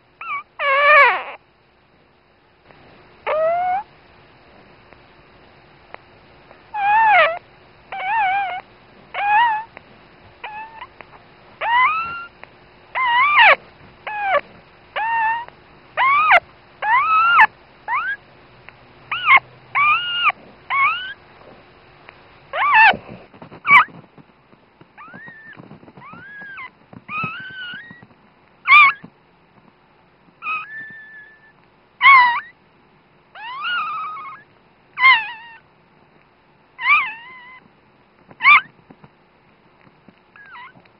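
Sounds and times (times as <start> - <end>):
puppy squeaking and crying: 0.2 - 1.4, 3.2 - 3.9, 6.7 - 9.7, 10.4 - 14.4, 15.0 - 18.2, 19.1 - 21.2, 22.5 - 24.0, 25.0 - 29.1, 30.4 - 32.6, 33.4 - 35.6, 36.8 - 37.7, 38.4 - 38.7, 40.4 - 40.9.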